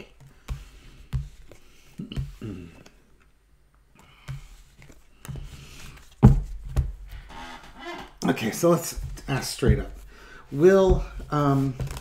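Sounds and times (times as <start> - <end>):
cards sliding on cloth: 0.3 - 2.0, 4.2 - 6.2.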